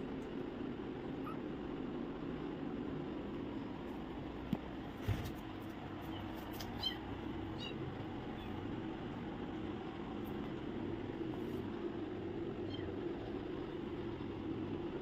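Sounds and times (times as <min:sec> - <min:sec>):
low background hum: 0:00.0 - 0:15.0
kitten mewing: 0:01.1 - 0:01.6.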